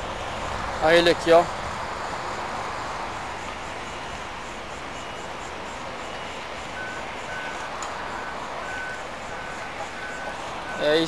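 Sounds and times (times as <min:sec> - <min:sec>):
distant traffic rumble: 0:00.0 - 0:11.0
reversing alarm beeps: 0:03.4 - 0:11.0.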